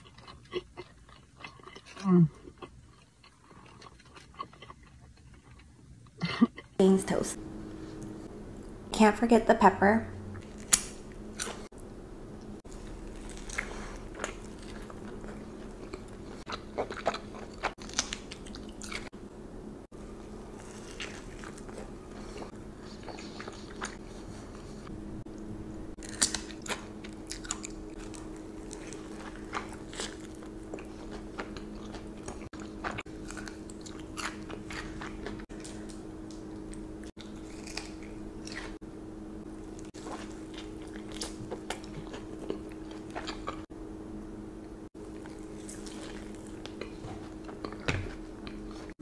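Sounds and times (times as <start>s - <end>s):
wet chewing: 0.0s - 5.7s, 12.6s - 19.2s, 20.5s - 24.9s, 26.0s - 38.8s, 39.7s - 43.7s, 45.0s - 49.0s
steady low hum: 0.0s - 49.0s.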